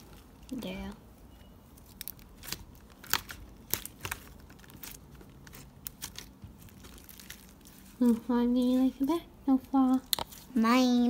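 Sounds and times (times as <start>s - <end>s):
slime sticky clicks and crackles: 1.8s - 7.8s, 9.8s - 10.4s.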